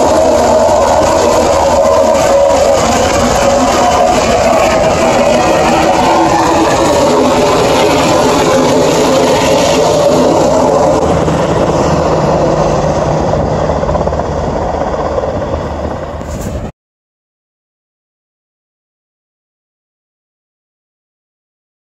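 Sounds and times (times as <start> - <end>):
helicopter flying overhead: 0.0 - 16.7.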